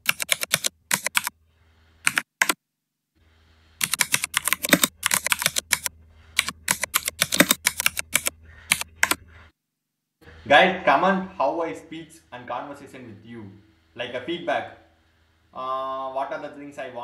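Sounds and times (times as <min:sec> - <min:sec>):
typing on computer keyboard: 0:00.0 - 0:01.3, 0:02.1 - 0:02.6, 0:03.8 - 0:09.2
faint low hum: 0:10.2 - 0:17.0.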